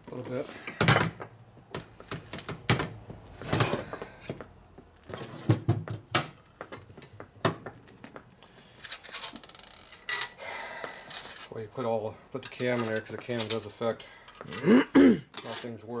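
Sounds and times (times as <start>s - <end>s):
metal parts knocking and clunking: 12.4s - 13.7s.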